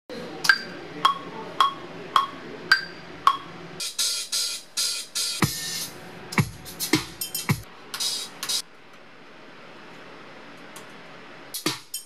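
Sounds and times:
hi-hat-like hits: 2.7s - 8.6s, 11.5s - 12.0s.

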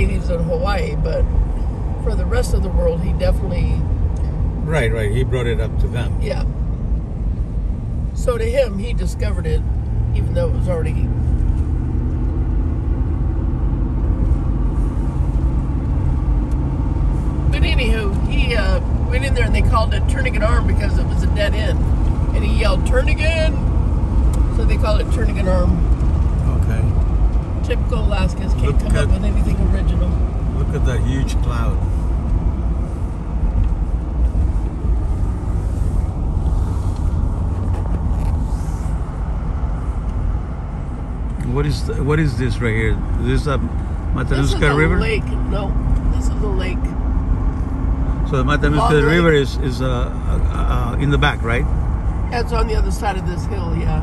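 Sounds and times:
car road and engine rumble: 0.0s - 54.0s
faint road hiss: 23.8s - 46.1s.

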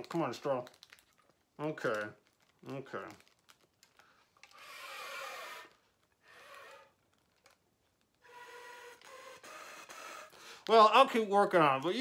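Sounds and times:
breathy flute air blasts: 8.2s - 10.6s.

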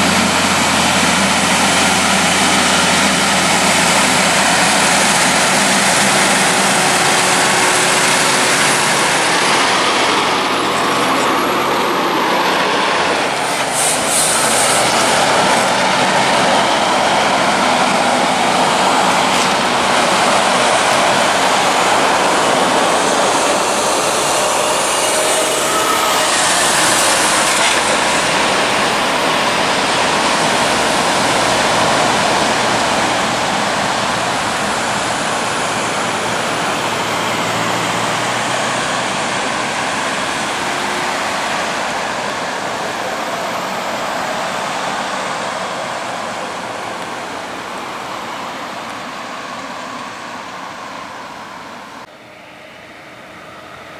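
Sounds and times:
heavy trucks passing: 0.0s - 53.9s.

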